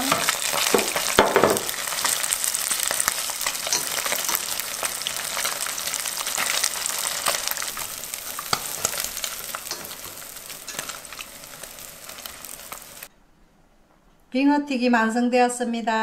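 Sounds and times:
chopsticks stirring: 0:00.0 - 0:13.1
fish sizzling in hot oil: 0:00.0 - 0:13.1.

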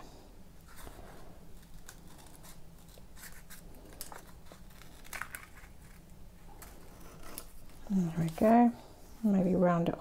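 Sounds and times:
paper rustling: 0:00.6 - 0:08.6.

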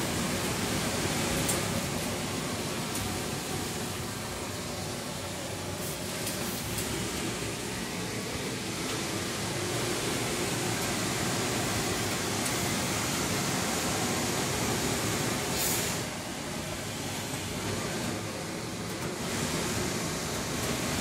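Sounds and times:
sharp hiss of steam: 0:09.2 - 0:16.2.

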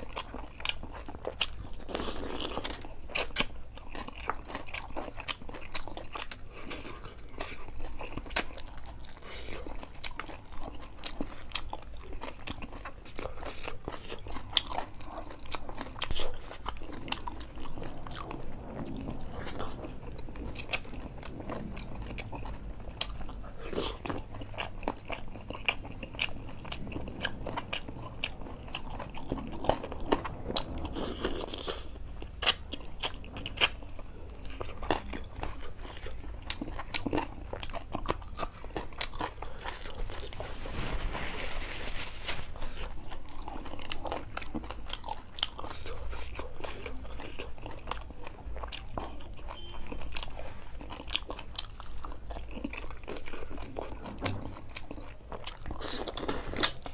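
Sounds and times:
man chewing with crunching: 0:00.0 - 0:56.9.

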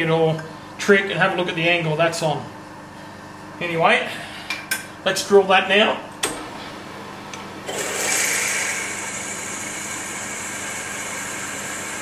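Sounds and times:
milling machine low hum: 0:04.9 - 0:12.0
drill cutting into cast iron: 0:07.7 - 0:12.0.

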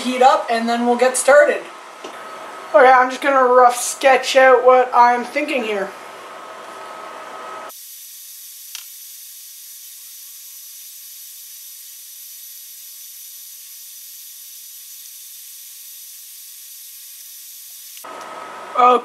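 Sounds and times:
steady high hiss: 0:07.6 - 0:18.1.

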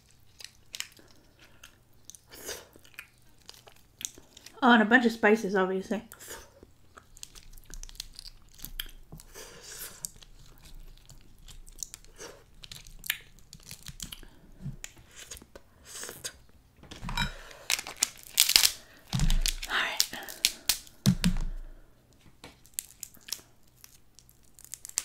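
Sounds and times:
close chewing: 0:00.0 - 0:04.6, 0:06.1 - 0:16.5
crab shells cracking: 0:00.0 - 0:04.6, 0:06.6 - 0:15.6, 0:17.2 - 0:21.6, 0:22.5 - 0:25.0.

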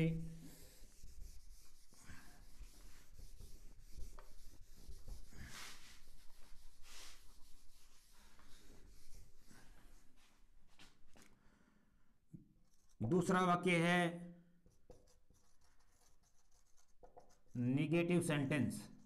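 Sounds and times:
eraser rubbing on whiteboard: 0:00.4 - 0:10.4, 0:14.7 - 0:17.6.

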